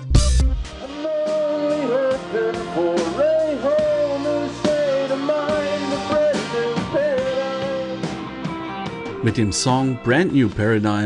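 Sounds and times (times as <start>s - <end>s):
rock band playing: 0.0s - 10.1s
man singing: 0.8s - 8.3s.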